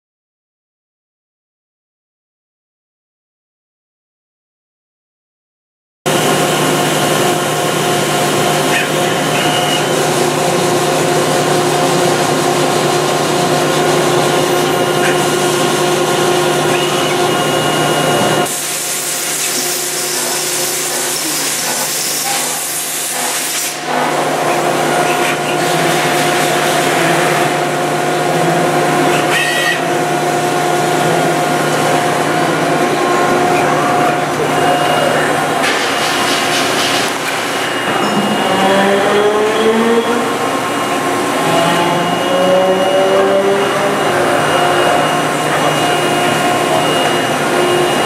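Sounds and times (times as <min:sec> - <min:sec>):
machine whine over low hum: 0:06.1 - 0:48.0
coolant hiss: 0:18.4 - 0:24.0.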